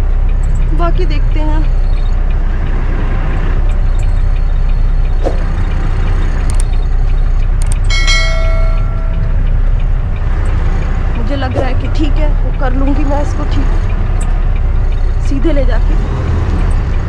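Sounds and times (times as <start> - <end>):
truck engine rumbling: 0.0 - 17.0
click: 3.7 - 10.9
bell-like chime: 7.8 - 9.6.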